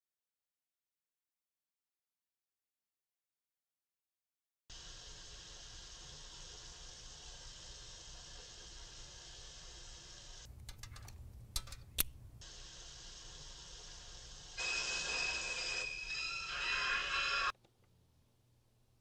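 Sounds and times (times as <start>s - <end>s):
shower water running: 4.7s - 10.5s, 12.4s - 17.5s
sharp clicks: 10.5s - 12.2s.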